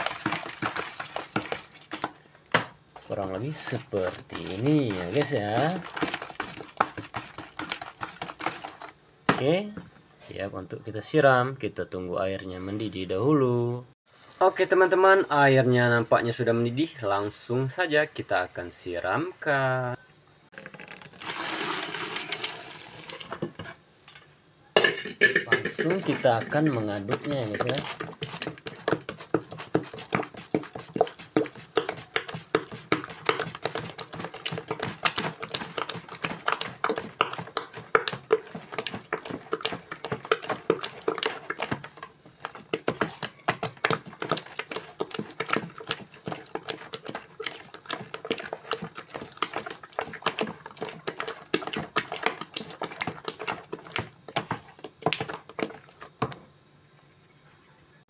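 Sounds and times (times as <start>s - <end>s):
wooden spoon clacking in bucket: 0.0s - 8.9s, 24.8s - 56.4s.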